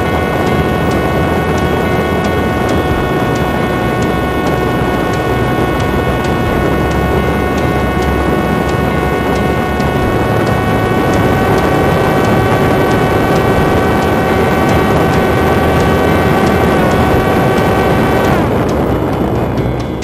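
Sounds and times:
drone motor whining: 0:00.0 - 0:20.0
wind noise: 0:00.0 - 0:20.0.

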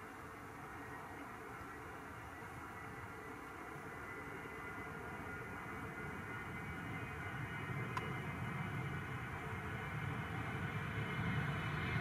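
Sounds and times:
faint distant jet whine: 0:00.0 - 0:12.0.

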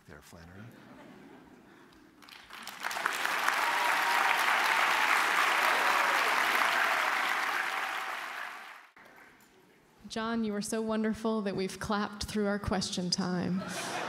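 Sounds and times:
audience applauding: 0:02.2 - 0:09.3.

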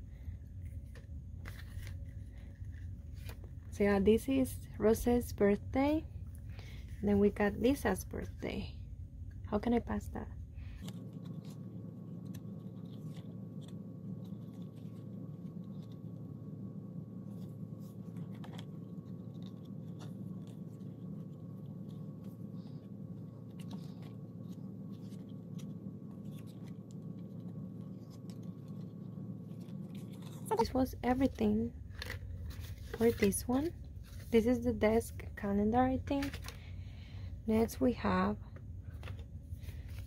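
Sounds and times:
low background hum: 0:00.0 - 0:40.0
calendar pages turning: 0:00.6 - 0:04.3, 0:10.6 - 0:16.3, 0:17.2 - 0:35.3, 0:35.9 - 0:36.7, 0:38.9 - 0:40.0.

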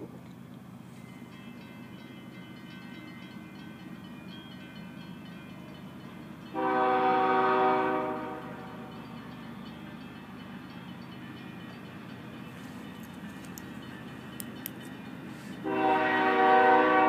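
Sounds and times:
train low rumble: 0:00.0 - 0:17.0
locomotive air horn blast: 0:06.6 - 0:08.7, 0:15.5 - 0:17.0.

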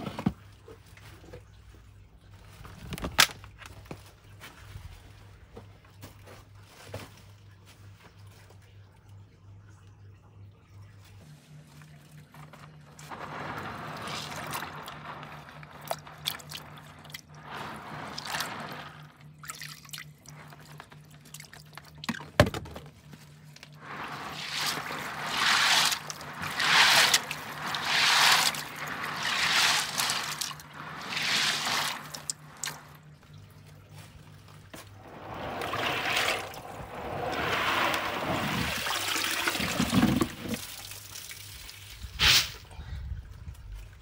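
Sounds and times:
steady low hum: 0:08.6 - 0:39.0
water splashing and dripping: 0:12.4 - 0:22.6, 0:23.4 - 0:42.5
hand swishing through water: 0:13.0 - 0:19.2, 0:23.8 - 0:33.1, 0:34.9 - 0:40.6.

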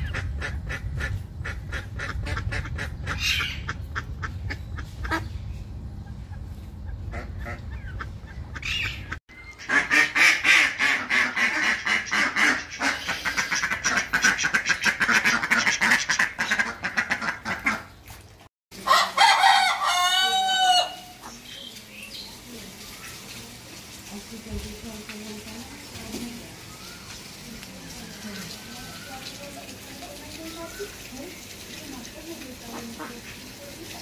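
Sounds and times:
ducks quacking: 0:00.0 - 0:05.4, 0:06.1 - 0:18.0.

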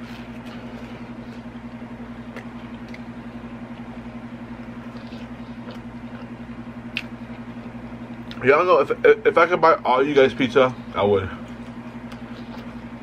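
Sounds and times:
low hum with fast flutter: 0:00.0 - 0:13.0.

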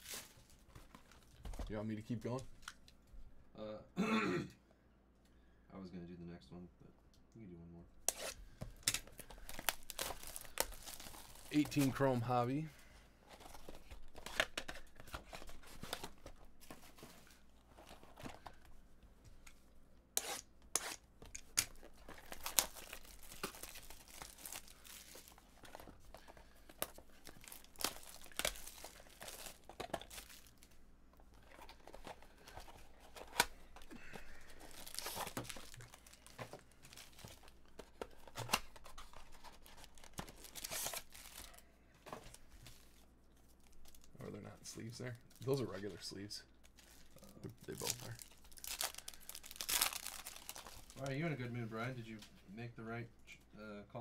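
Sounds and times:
wrappers torn and crinkled: 0:00.0 - 0:00.6, 0:08.1 - 0:12.5, 0:20.2 - 0:30.8, 0:34.4 - 0:41.6, 0:46.6 - 0:51.2.

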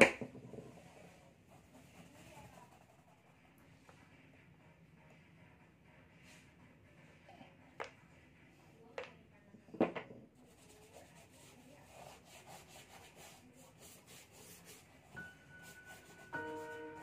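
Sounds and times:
plastic bottle knocking on wooden table: 0:00.0 - 0:00.8, 0:09.7 - 0:10.2
paintbrush scratching on canvas: 0:00.6 - 0:04.0, 0:10.4 - 0:17.0
steady musical tone: 0:15.2 - 0:17.0.

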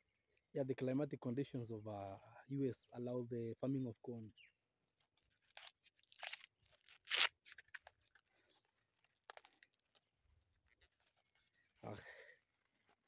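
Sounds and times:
corn husk tearing: 0:05.0 - 0:11.6.

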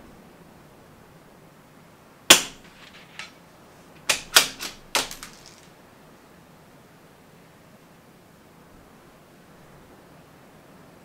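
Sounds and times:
rifle shot: 0:02.3 - 0:03.3, 0:04.1 - 0:05.7
rifle bolt clicks: 0:04.0 - 0:05.7.

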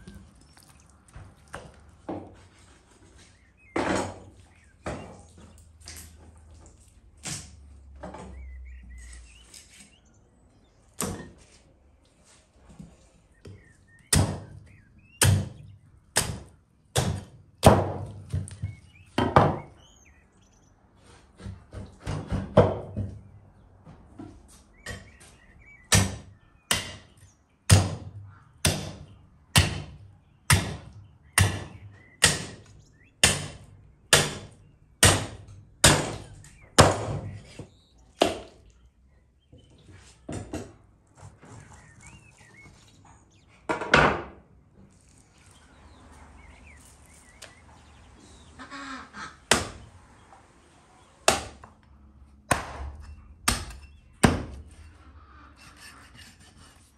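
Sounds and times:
cleaver chopping on wooden board: 0:14.1 - 0:14.6, 0:16.2 - 0:18.5, 0:27.7 - 0:32.6.

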